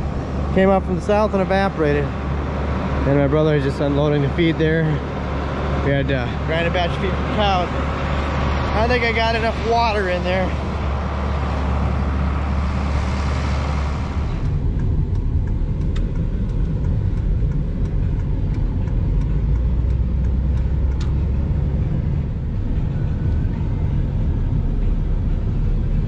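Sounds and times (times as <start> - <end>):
low engine hum outdoors: 0.0 - 26.0
truck engine and road noise: 0.0 - 26.0
light ticks: 14.4 - 21.4.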